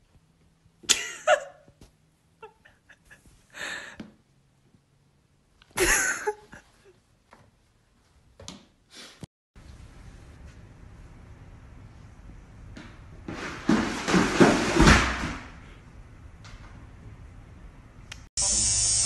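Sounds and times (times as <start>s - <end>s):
person's stifled laughter: 0.9s - 1.7s, 5.8s - 7.0s.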